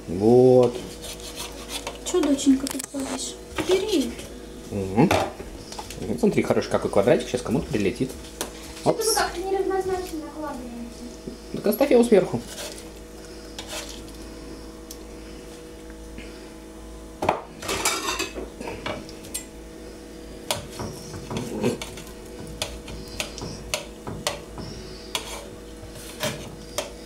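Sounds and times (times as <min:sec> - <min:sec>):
knife scraping metal tray: 0:00.8 - 0:02.2, 0:12.4 - 0:12.9, 0:13.5 - 0:14.0, 0:20.9 - 0:27.0.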